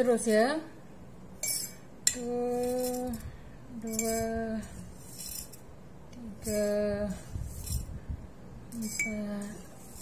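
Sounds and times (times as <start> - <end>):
metal spoon clinking on glass jar: 1.4 - 3.2, 3.9 - 4.3.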